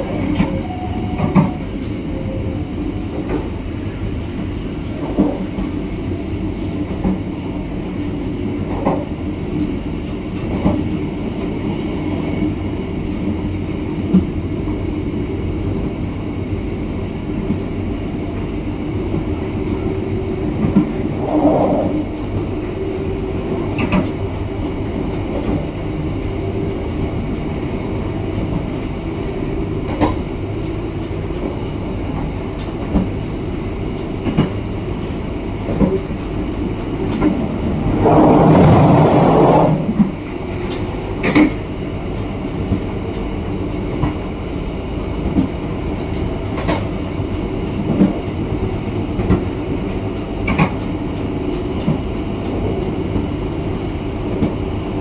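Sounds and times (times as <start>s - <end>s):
train rumbling: 0.0s - 55.0s
loud rushing noise: 37.4s - 40.0s.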